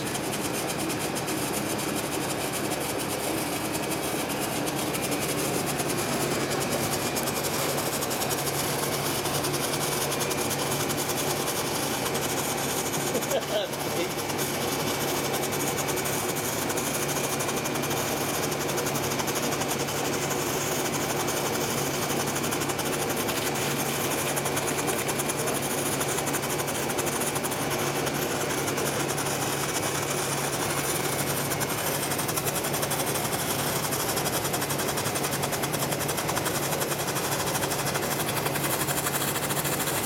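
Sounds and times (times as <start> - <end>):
firework fountain hiss: 12.1 - 35.8.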